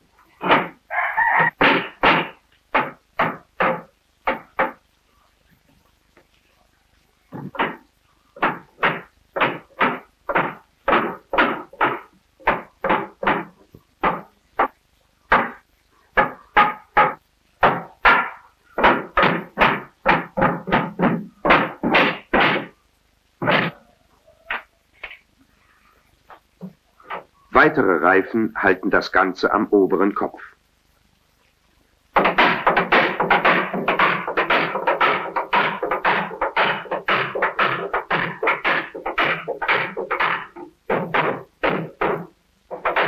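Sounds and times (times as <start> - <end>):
hammer striking iron hoops: 16.2 - 22.7, 32.2 - 43.0.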